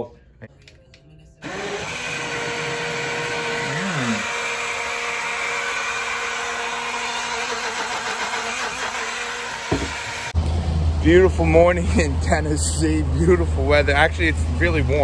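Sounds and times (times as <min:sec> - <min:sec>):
personal blender running: 0:01.4 - 0:10.4.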